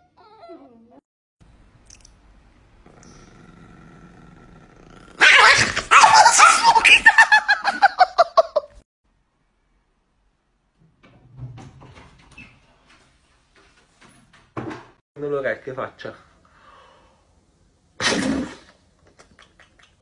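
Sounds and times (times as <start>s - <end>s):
small dog yapping: 5.2s - 6.9s
faint knocks and rustles: 10.7s - 15.0s.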